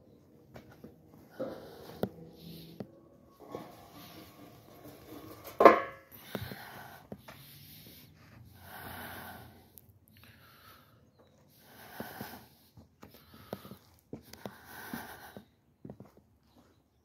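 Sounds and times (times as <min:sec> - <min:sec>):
soft breathy rustling: 0:06.1 - 0:16.8.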